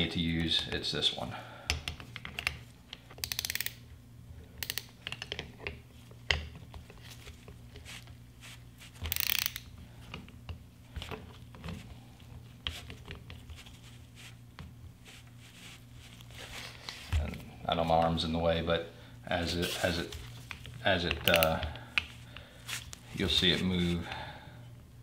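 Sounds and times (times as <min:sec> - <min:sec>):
steady low hum: 0:00.0 - 0:25.0
hand ratchet clicking: 0:03.2 - 0:03.8, 0:04.6 - 0:05.4, 0:09.0 - 0:09.7, 0:21.2 - 0:21.6.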